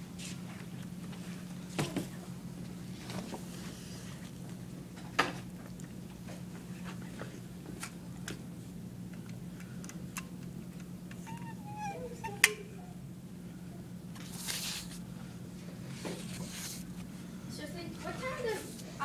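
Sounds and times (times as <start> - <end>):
low room hum: 0.0 - 19.0
wavering squeak: 11.3 - 13.0.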